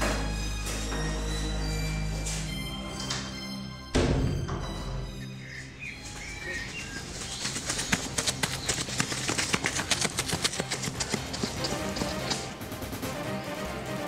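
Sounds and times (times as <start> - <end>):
background music: 0.0 - 14.0
bird chirps: 4.5 - 9.9
running footsteps on pavement: 5.9 - 12.5.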